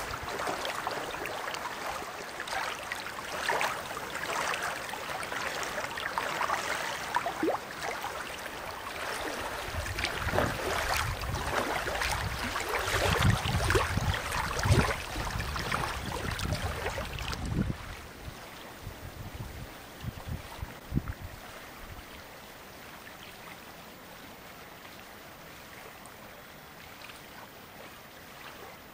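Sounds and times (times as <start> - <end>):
wind rumbling on microphone: 0.0 - 1.3, 9.0 - 22.2
waves lapping on pebbles: 0.0 - 18.2.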